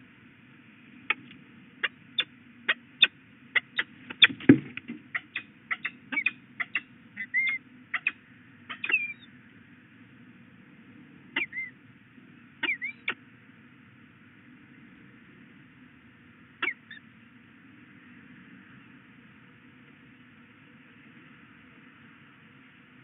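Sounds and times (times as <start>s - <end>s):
falcon calling: 1.1s - 9.3s, 11.4s - 11.7s, 12.6s - 13.2s, 16.6s - 17.0s
dull thump: 4.3s - 5.0s.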